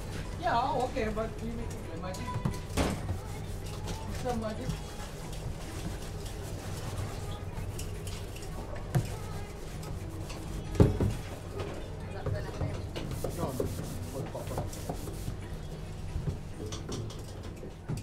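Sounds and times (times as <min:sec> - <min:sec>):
kitchen knocks and clatter: 0:10.7 - 0:13.4.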